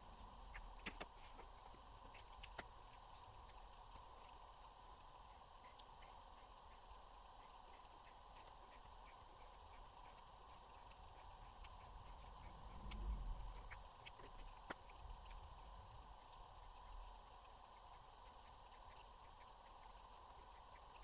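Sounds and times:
paint pen scratching on paper: 5.6 - 15.4.

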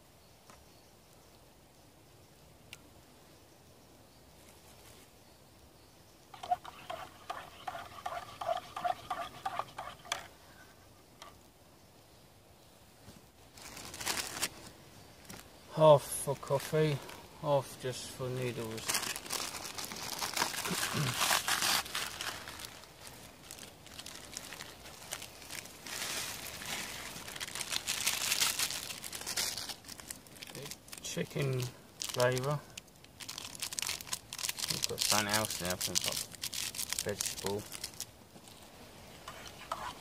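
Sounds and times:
plastic packet crinkling: 13.6 - 14.6, 18.7 - 38.1.

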